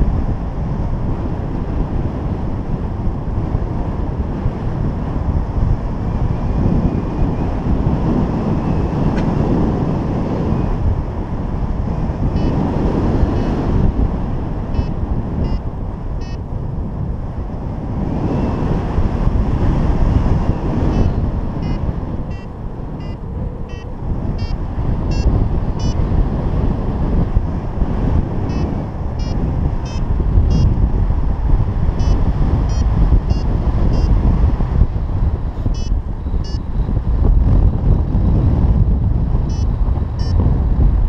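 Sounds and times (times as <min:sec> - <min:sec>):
wind buffeting microphone: 0:00.0 - 0:41.0
faint short high beeps: 0:21.0 - 0:26.0.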